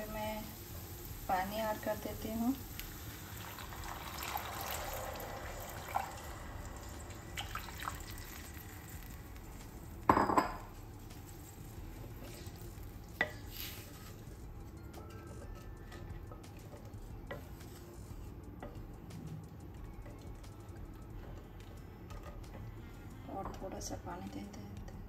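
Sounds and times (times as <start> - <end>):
water splashing into hot pan: 2.8 - 9.2
cookware clattering: 10.1 - 10.7
wooden spatula stirring in pan: 10.7 - 18.9.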